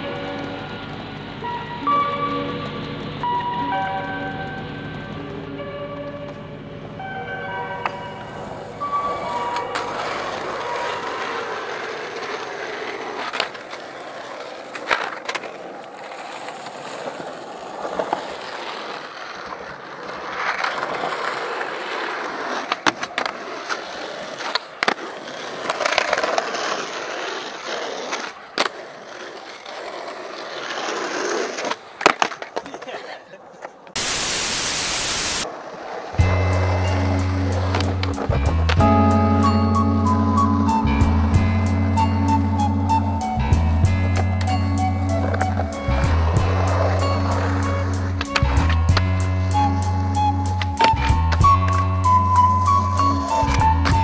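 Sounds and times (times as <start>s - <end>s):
skateboard wheels rolling on tarmac: 0.0s - 54.0s
skateboard popping and landing: 7.8s - 33.0s, 35.4s - 38.9s, 45.1s - 54.0s
steady hiss: 34.0s - 35.4s.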